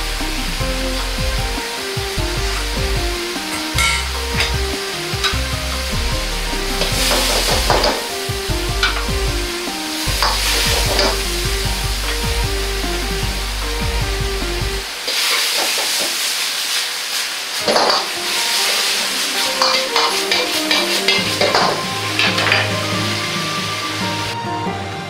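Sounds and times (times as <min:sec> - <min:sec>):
food sizzling in a wok: 0:00.0 - 0:13.9, 0:14.8 - 0:24.4
metal ladle scraping a wok: 0:03.4 - 0:09.1, 0:17.6 - 0:24.3.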